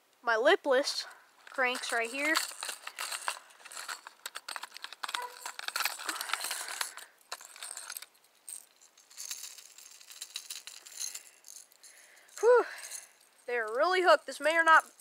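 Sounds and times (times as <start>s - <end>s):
fishing lures clattering in plastic box: 1.4s - 13.1s.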